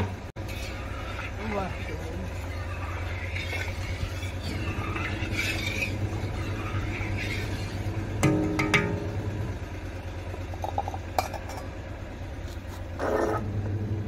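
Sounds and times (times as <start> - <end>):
low rumble: 0.0 - 12.4
metal utensil striking iron pot: 8.2 - 9.3.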